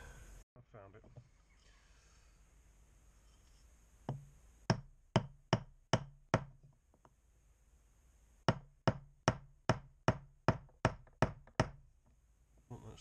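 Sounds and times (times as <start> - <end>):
wood block knocking on metal: 4.1 - 6.7, 8.5 - 11.8.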